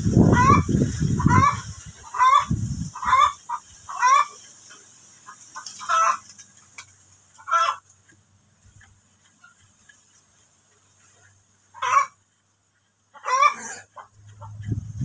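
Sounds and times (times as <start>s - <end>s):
low rumble: 14.2s - 15.0s.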